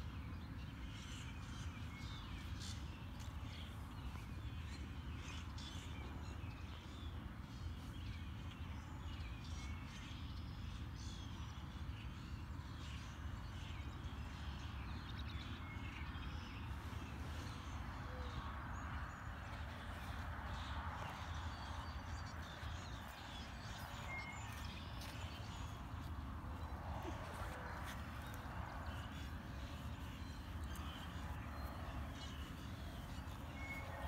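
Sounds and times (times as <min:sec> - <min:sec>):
steady low rumble: 0:16.2 - 0:34.0.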